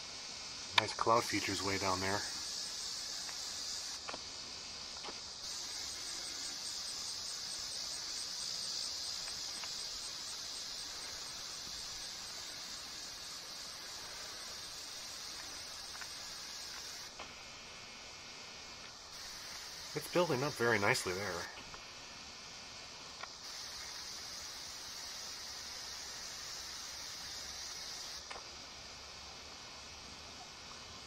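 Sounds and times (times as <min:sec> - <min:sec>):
insects droning: 0:00.0 - 0:31.0.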